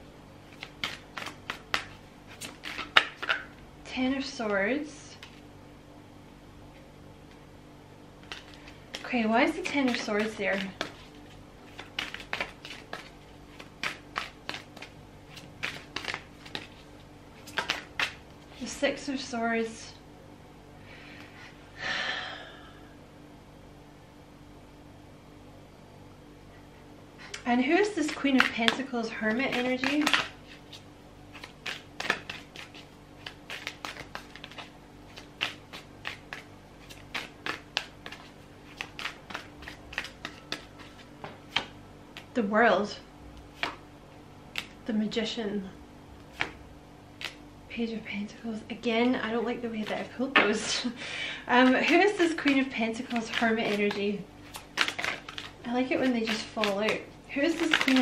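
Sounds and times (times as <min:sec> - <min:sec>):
faint steady hum: 0:00.0 - 0:58.0
cards being shuffled: 0:00.4 - 0:03.6, 0:05.1 - 0:05.4, 0:08.2 - 0:18.9, 0:27.3 - 0:42.4, 0:43.4 - 0:43.8, 0:44.5 - 0:44.8, 0:46.2 - 0:47.4, 0:49.0 - 0:50.9, 0:51.5 - 0:58.0.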